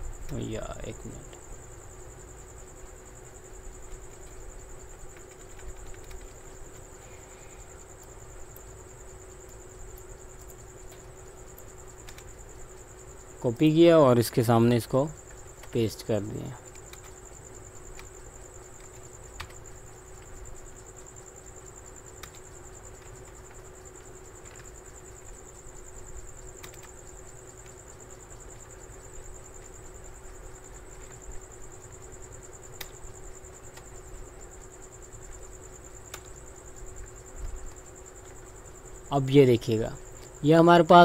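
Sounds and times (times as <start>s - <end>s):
keyboard key clicks: 26.6s - 27.0s.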